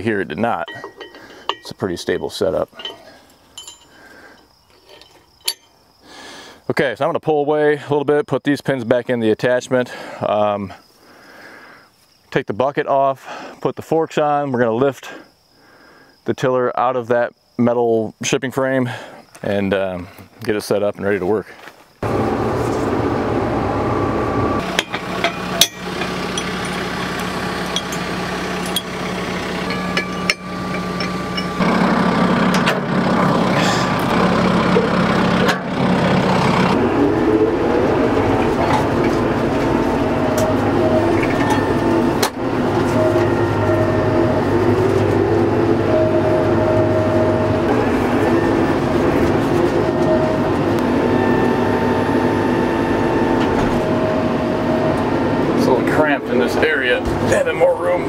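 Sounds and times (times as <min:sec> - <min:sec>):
tractor diesel engine running: 0:00.0 - 0:04.3, 0:22.0 - 0:58.0
sharp metallic knocks: 0:24.6 - 0:31.8.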